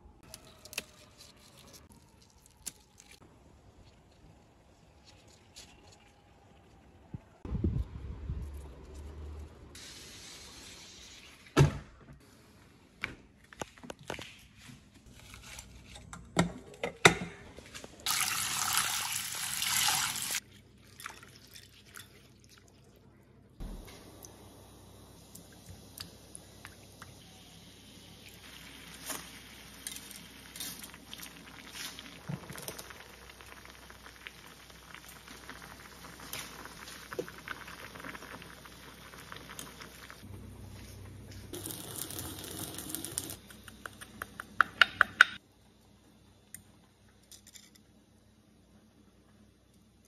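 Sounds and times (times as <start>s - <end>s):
noodles boiling in saucepan: 24.0s - 40.6s, 41.5s - 43.7s.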